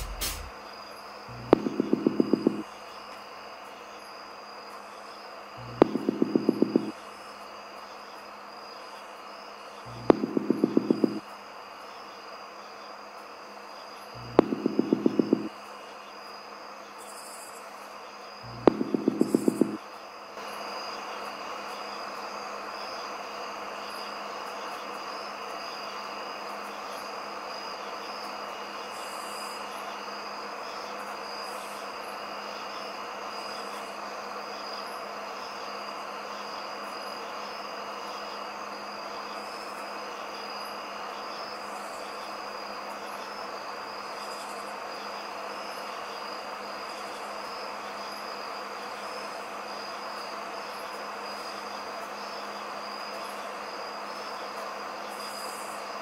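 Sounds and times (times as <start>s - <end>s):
insects trilling: 0.0s - 56.0s
low hum: 1.3s - 2.7s, 5.6s - 7.0s, 9.9s - 11.2s, 14.2s - 15.5s, 18.4s - 19.8s.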